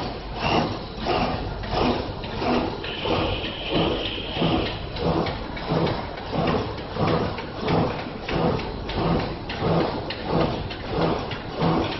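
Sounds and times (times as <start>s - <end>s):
extrusion machinery running: 0.0s - 11.9s
rhythmic machine swish: 0.0s - 11.9s.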